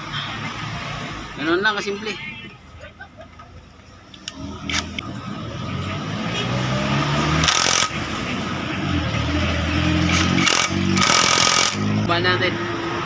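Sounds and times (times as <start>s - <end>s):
impact driver hammering on bolts: 10.1s - 11.9s.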